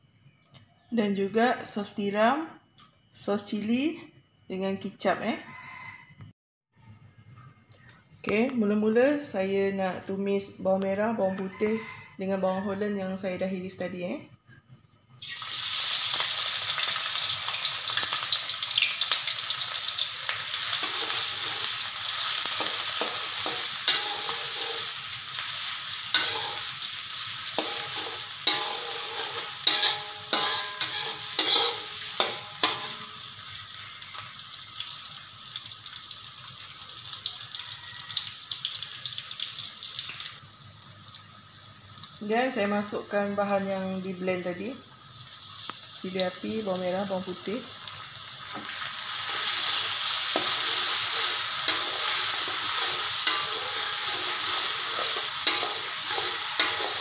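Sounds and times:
vegetables sizzling in hot oil: 0:15.2 - 0:57.0
metal spatula scraping wok: 0:19.0 - 0:34.2, 0:48.5 - 0:57.0.

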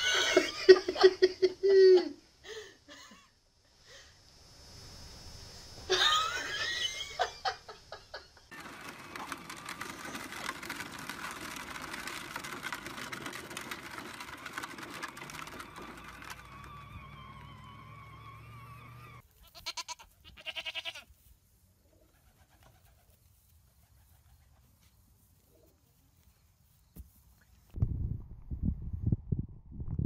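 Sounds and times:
toy car electric motor whirring: 0:08.5 - 0:19.2.

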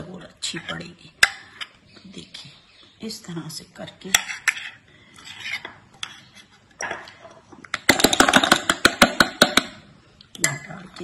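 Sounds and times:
spoon scraping steel bowl: 0:04.0 - 0:06.9.

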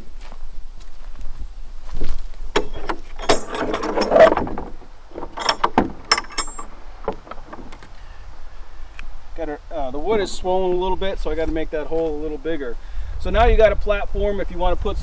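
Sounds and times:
metal locking pin clicking: 0:02.6 - 0:08.0
wooden panel knocking and rattling: 0:02.6 - 0:08.1.

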